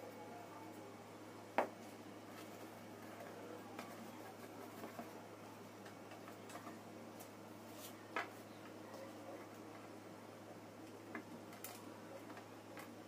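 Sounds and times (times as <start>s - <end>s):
faint low hum: 0.0s - 13.0s
light clicks and taps cleaning fans: 2.3s - 10.0s, 10.8s - 13.0s.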